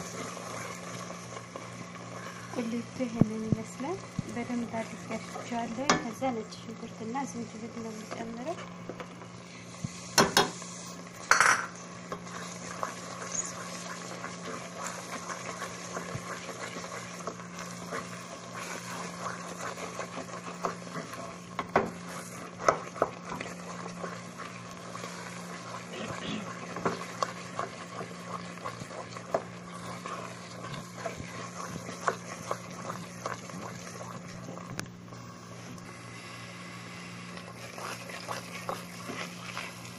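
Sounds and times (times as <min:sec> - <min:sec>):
spoon knocking against metal pot: 0:05.9 - 0:06.1
wooden spoon stirring thick paste: 0:12.2 - 0:34.6, 0:37.4 - 0:39.9.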